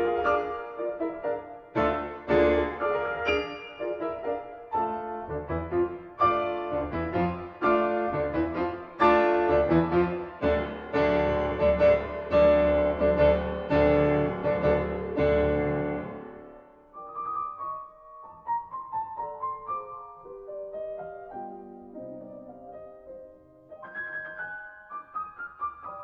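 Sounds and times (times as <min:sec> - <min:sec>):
piano music: 0:00.0 - 0:26.0.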